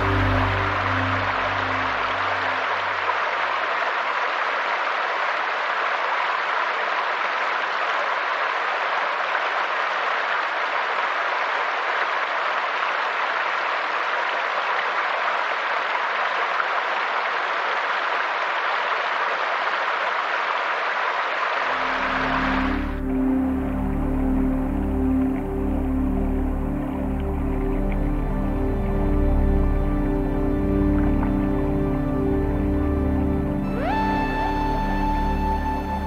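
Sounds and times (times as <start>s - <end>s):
low background music: 0.0s - 3.3s, 21.8s - 36.0s
stream running over stones: 0.0s - 36.0s.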